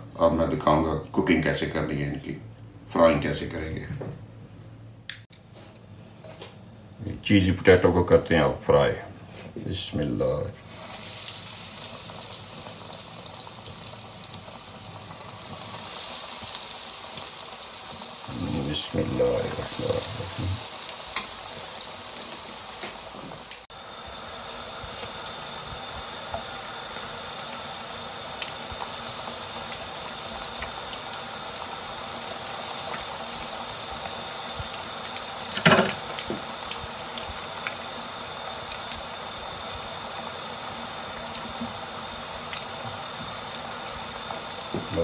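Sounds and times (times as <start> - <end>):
food deep-frying in oil: 10.6 - 45.0.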